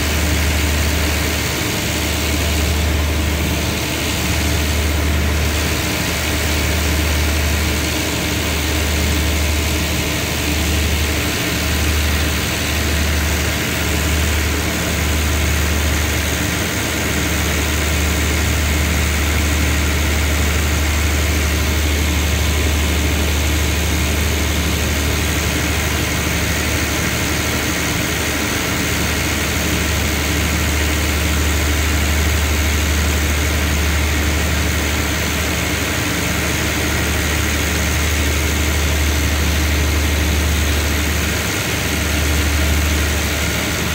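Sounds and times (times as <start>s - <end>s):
diesel train engine idling: 0.0s - 43.9s.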